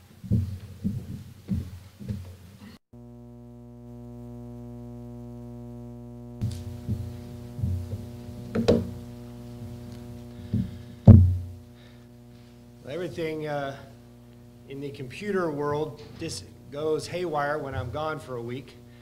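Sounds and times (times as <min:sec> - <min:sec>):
electrical hum: 0:00.0 - 0:19.0
soft knocks and thumps: 0:00.2 - 0:02.4, 0:06.5 - 0:09.0, 0:10.4 - 0:11.5.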